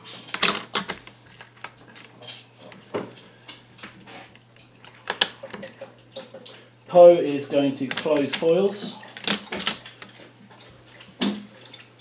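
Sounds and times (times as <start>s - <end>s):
plastic pieces clacking on table: 0.2s - 2.8s, 4.8s - 5.8s, 7.8s - 8.5s, 9.1s - 10.2s.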